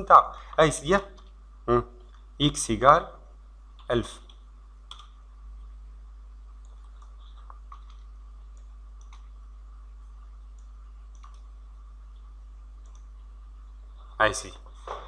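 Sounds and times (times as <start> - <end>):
steady low hum: 0.0 - 15.0
keyboard and mouse clicks: 3.8 - 5.2, 6.6 - 9.4, 10.5 - 11.5, 12.1 - 13.2.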